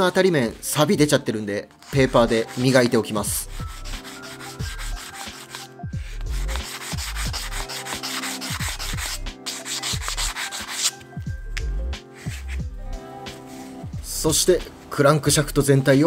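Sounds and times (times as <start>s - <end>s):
background music: 0.0s - 16.0s
sandpaper rubbing on steel: 1.8s - 11.0s, 12.0s - 12.7s.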